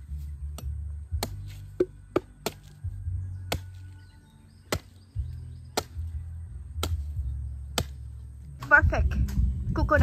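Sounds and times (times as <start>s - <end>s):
background music: 0.0s - 10.0s
blade chopping coconut: 0.5s - 2.8s, 3.5s - 3.9s, 4.6s - 8.2s.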